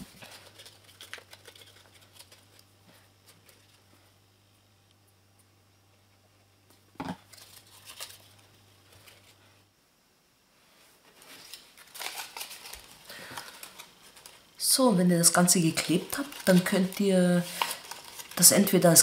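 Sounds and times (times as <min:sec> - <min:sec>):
paper rustling and crinkling: 0:00.0 - 0:03.9, 0:07.2 - 0:09.6, 0:11.1 - 0:19.0.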